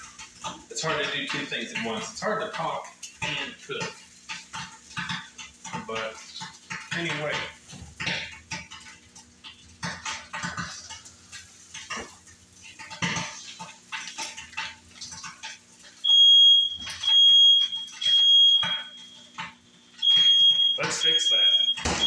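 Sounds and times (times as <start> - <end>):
kitchen knocks and clatter: 0.0 - 16.0, 16.8 - 22.0
smoke alarm beeping: 16.0 - 22.0.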